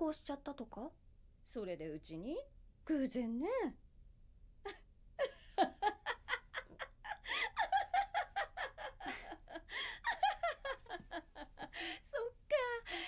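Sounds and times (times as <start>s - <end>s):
women laughing: 5.2s - 12.3s.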